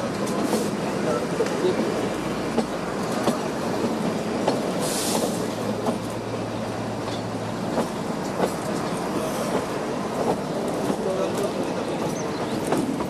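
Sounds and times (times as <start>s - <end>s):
train wheels rumbling on rail: 0.0s - 13.0s
brief hiss: 4.8s - 5.4s.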